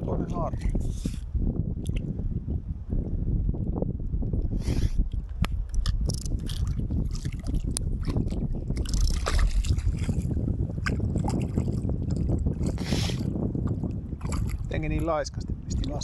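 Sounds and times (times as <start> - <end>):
steady low rumble: 0.0 - 16.0
river water splashing: 6.4 - 13.2.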